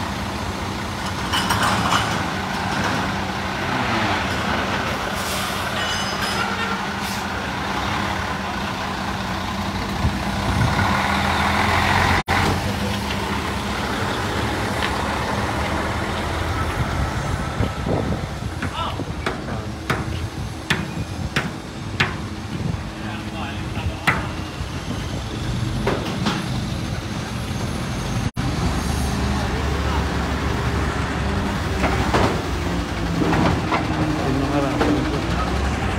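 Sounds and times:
truck diesel engine droning: 0:00.0 - 0:35.9.

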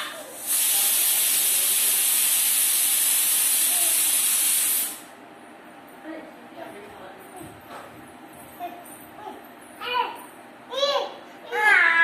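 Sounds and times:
loud high-pitched hiss: 0:00.0 - 0:05.1.

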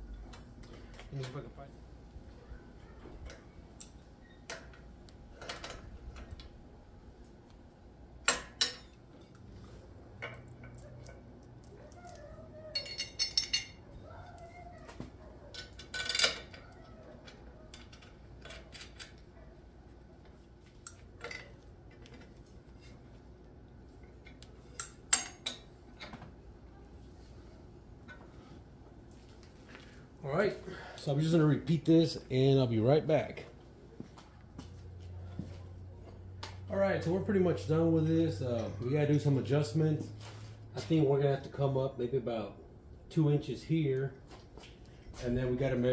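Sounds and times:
metal parts and wrench clinking: 0:03.1 - 0:06.5, 0:08.3 - 0:09.4, 0:12.6 - 0:13.9, 0:15.4 - 0:19.3, 0:24.2 - 0:26.2.

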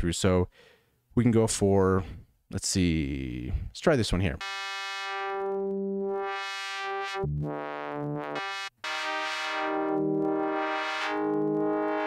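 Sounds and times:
sustained synth notes sweeping: 0:04.4 - 0:12.0.

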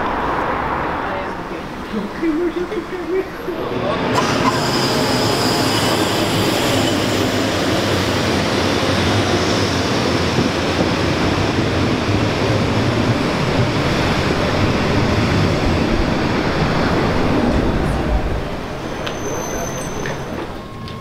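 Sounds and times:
train wheels rumbling on rail: 0:00.0 - 0:21.0
faint high squeal: 0:04.2 - 0:07.7, 0:18.8 - 0:21.0.

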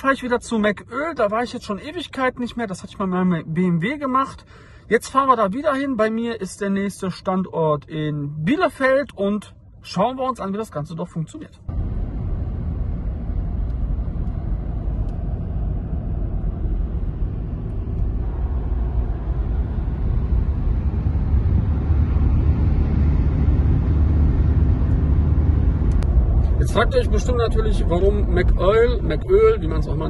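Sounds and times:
car cabin road rumble: 0:11.5 - 0:30.0.

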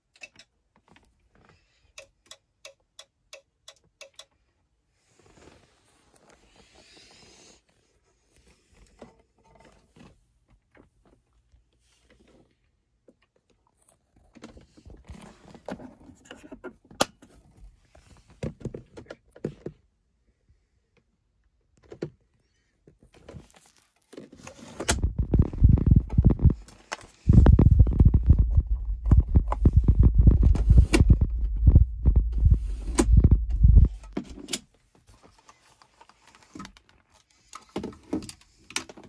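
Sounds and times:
phone handling clicks and rustling: 0:23.1 - 0:39.0
low rough rubbing rumble: 0:25.0 - 0:26.6, 0:27.2 - 0:34.2.

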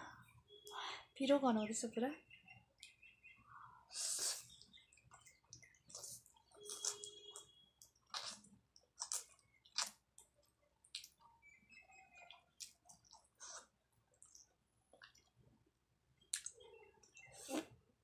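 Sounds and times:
noodle slurping and chewing: 0:03.9 - 0:10.3, 0:12.2 - 0:15.4
mouth clicks and smacks: 0:07.8 - 0:11.3, 0:16.2 - 0:17.8.

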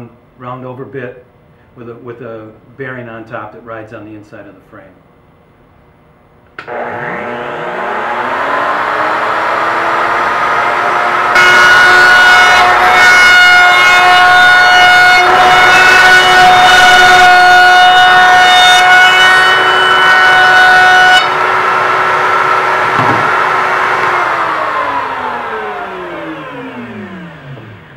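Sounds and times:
router motor whine: 0:06.6 - 0:27.9.

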